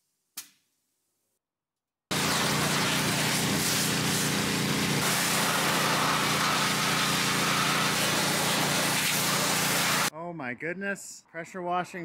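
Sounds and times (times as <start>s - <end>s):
high-pressure spray hissing: 2.1s - 10.1s
pressure washer engine running: 2.1s - 10.1s.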